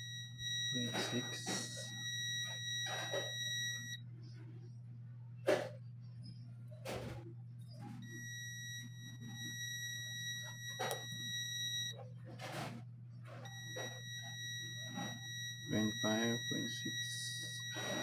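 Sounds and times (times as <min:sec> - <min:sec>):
multimeter continuity beep: 0:00.0 - 0:04.0, 0:07.8 - 0:12.6, 0:13.4 - 0:18.0.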